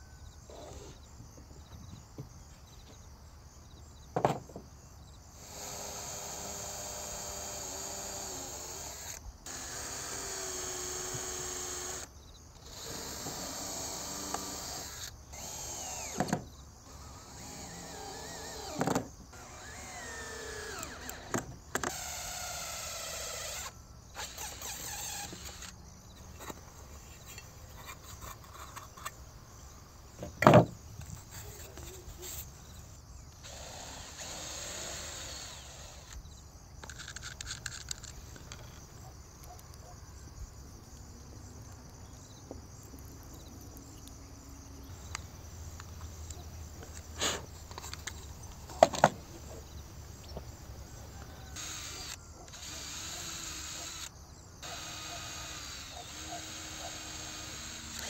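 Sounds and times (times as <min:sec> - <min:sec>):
cordless drill drilling into wood: 0:05.4 - 0:25.8, 0:33.4 - 0:36.2, 0:51.3 - 0:58.0.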